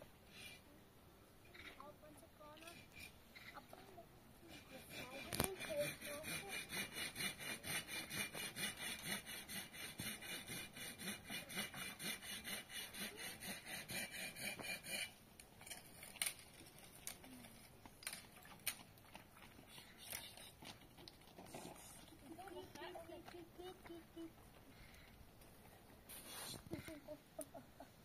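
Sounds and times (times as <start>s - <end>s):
hand saw cutting wood: 4.4s - 15.2s.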